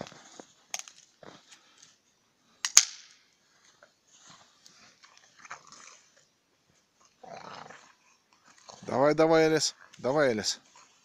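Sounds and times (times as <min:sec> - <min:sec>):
sharp snap: 0:02.6 - 0:03.2.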